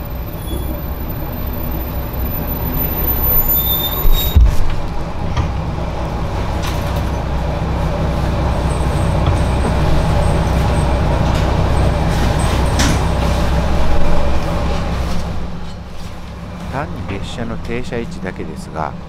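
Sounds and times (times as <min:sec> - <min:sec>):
diesel railcar rumbling: 0:00.0 - 0:19.0
loud clunk: 0:04.0 - 0:05.6.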